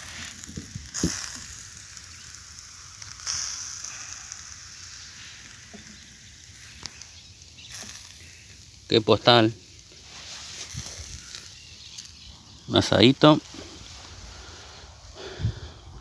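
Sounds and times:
fire crackling and hissing: 0.0 - 16.0.

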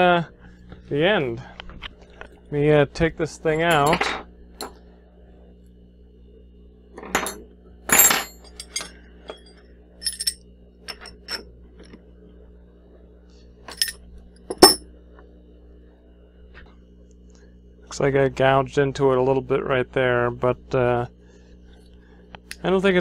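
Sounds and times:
steady low hum: 0.0 - 23.0
metal clinks and knocks: 3.6 - 4.8, 7.0 - 11.4, 13.7 - 14.8.

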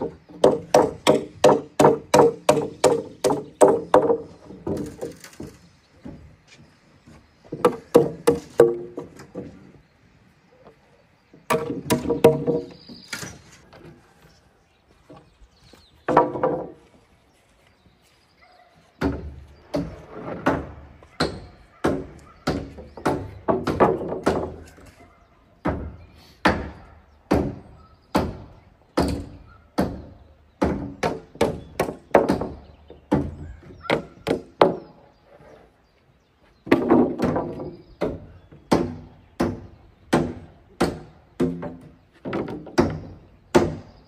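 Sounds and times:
tool striking wood: 0.3 - 5.5.

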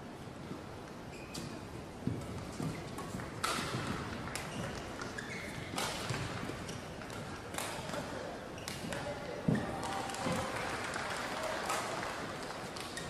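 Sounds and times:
rackets striking shuttlecock: 1.4 - 10.5.

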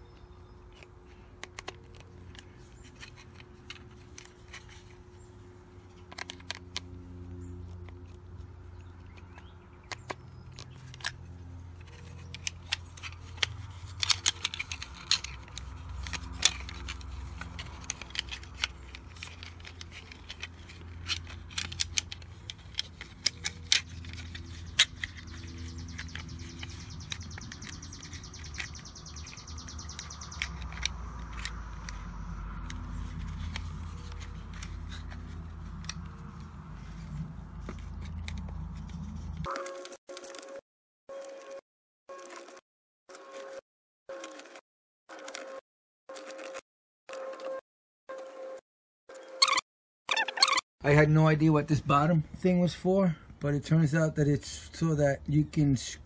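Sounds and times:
plastic device being handled: 0.0 - 40.6
screwdriver turning screws: 9.9 - 36.2.

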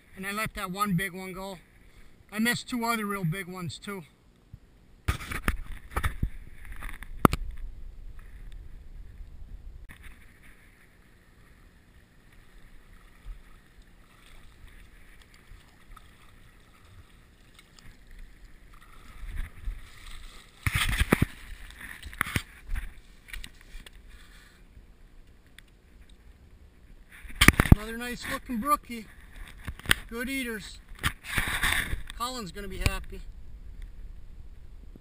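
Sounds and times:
stream water running: 9.8 - 33.9.

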